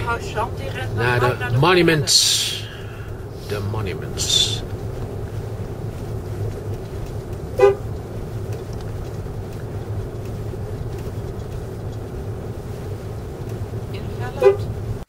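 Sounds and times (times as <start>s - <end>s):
car driving: 0.0s - 15.0s
car horn toot: 7.5s - 7.9s, 14.3s - 14.8s.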